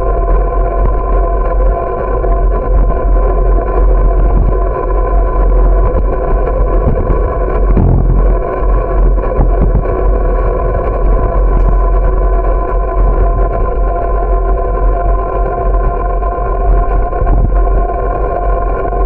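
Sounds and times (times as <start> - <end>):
steady multi-tone hum: 3.7 - 14.9
wind buffeting microphone: 4.0 - 13.6
bump: 7.8 - 9.7.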